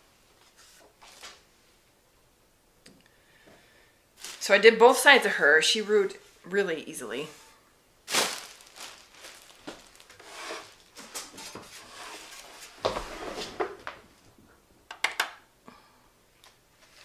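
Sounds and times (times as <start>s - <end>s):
bagged fleece rustling: 4.2s - 5.0s, 8.0s - 11.4s.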